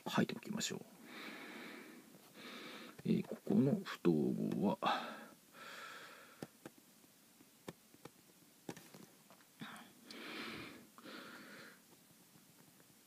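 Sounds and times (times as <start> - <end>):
breathing close to microphone: 1.0 - 3.0, 4.9 - 6.5, 9.6 - 11.8.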